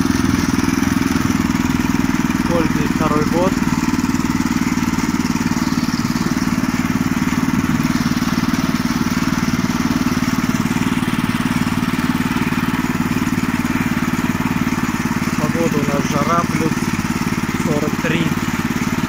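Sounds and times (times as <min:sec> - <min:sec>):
small petrol engine running steadily: 0:00.0 - 0:19.0.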